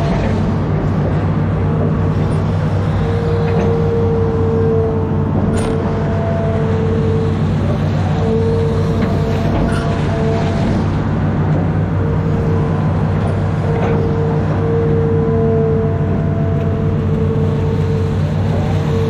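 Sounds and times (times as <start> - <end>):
diesel engine under load: 0.0 - 19.0
hydraulic whine: 0.0 - 19.0.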